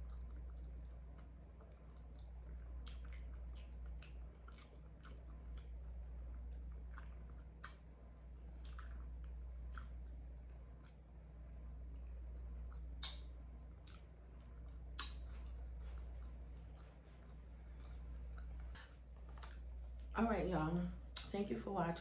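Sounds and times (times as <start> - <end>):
wet chewing and sucking: 0.0 - 11.2, 11.8 - 20.1
lip smacks: 0.0 - 20.1, 21.1 - 21.4
low steady hum: 0.0 - 22.0.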